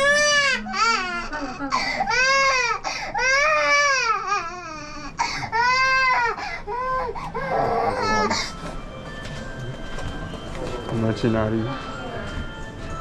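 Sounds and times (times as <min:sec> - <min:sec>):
infant crying: 0:00.0 - 0:08.6.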